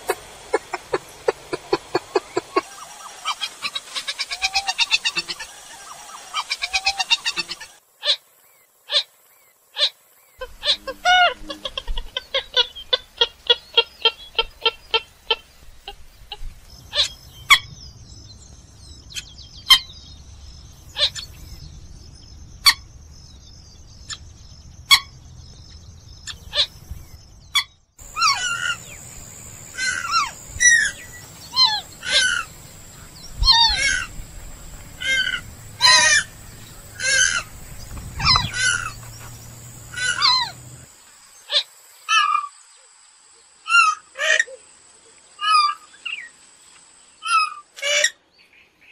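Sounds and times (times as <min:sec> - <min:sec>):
rail bird calling: 0:00.0 - 0:08.2, 0:09.8 - 0:17.8, 0:24.0 - 0:25.2, 0:27.5 - 0:40.9.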